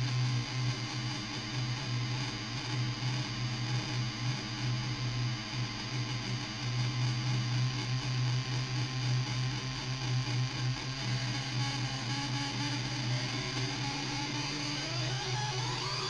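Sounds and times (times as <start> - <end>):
synthesizer noisy drone: 10.2 - 16.0.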